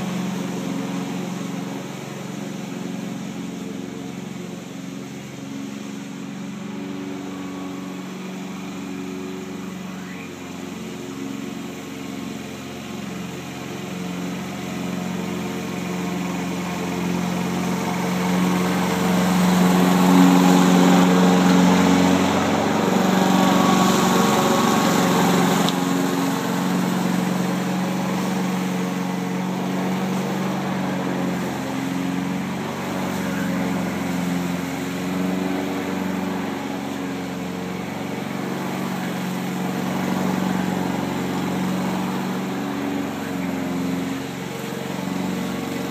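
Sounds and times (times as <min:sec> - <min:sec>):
lawn mower engine running: 0:00.0 - 0:45.9.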